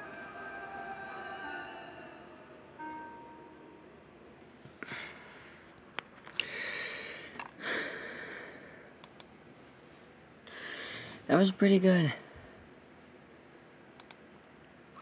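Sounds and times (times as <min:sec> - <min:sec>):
soft breathy sounds: 0:09.8 - 0:11.3
light clicks: 0:14.0 - 0:14.2.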